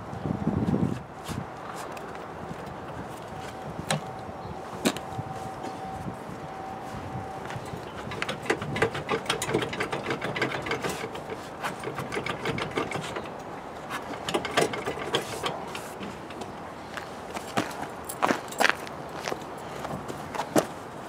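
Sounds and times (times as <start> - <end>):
suspension clicking and knocking: 7.7 - 16.6.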